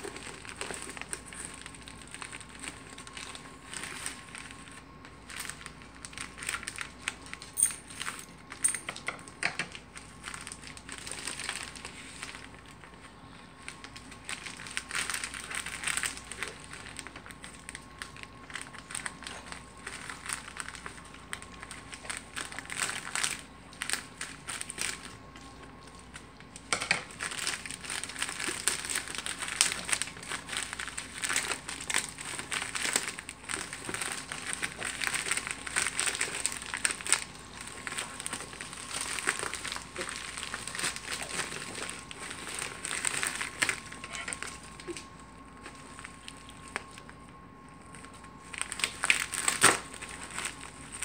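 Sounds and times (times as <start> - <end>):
plastic mailer crinkling: 0.0 - 51.0
scissors cutting plastic: 48.8 - 50.1.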